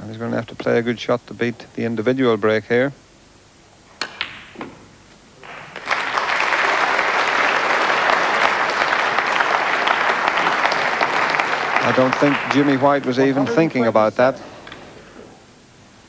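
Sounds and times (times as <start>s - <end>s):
snooker balls clicking: 4.0s - 6.1s
audience applause: 5.4s - 14.3s.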